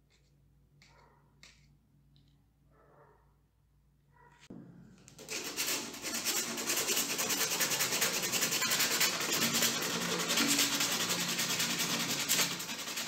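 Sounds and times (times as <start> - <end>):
hand scrubbing metal with abrasive: 5.1 - 13.0.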